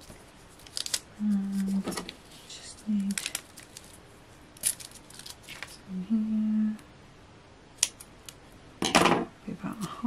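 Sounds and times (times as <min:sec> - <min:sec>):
person humming: 0:05.8 - 0:06.8.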